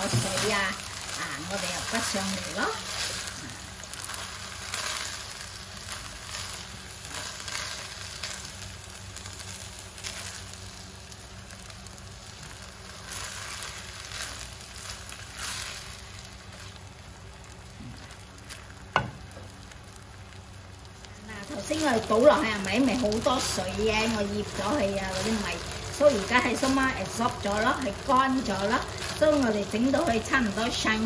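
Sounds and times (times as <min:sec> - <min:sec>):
rice sizzling in oil: 0:00.0 - 0:31.0
sharp knock: 0:19.0 - 0:19.4.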